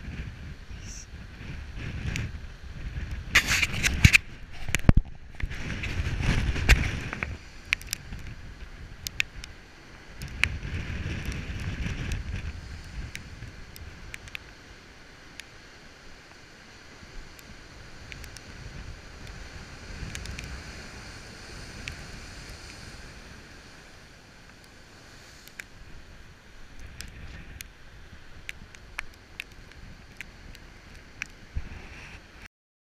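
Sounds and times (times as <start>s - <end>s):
wind buffeting microphone: 0.0s - 14.4s, 17.0s - 24.1s
surf breaking on rocky shore: 0.0s - 31.9s
sharp clicks: 7.7s - 8.3s, 9.0s - 9.5s, 14.1s - 14.5s, 18.1s - 18.4s.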